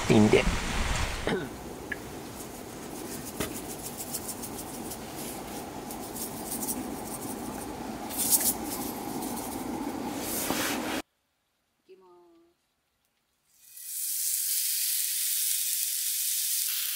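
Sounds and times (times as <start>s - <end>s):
steady low rush: 0.0s - 11.0s
salt and pepper shaker rattling: 2.4s - 10.1s.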